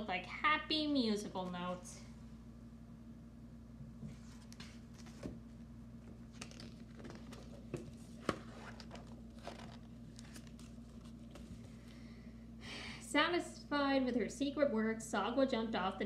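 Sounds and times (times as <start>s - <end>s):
faint low hum: 0.0s - 16.0s
paper rustling: 4.1s - 5.4s, 6.3s - 11.7s.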